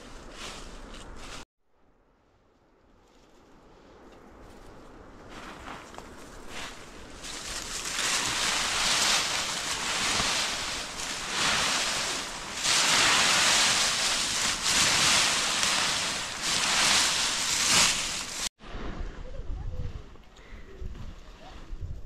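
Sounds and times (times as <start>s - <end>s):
dry leaves crackling and rustling: 4.4s - 18.5s.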